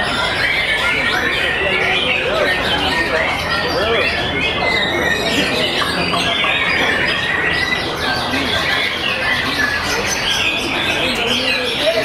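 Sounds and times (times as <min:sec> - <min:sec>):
chorus of songbirds whistling: 0:00.0 - 0:12.0.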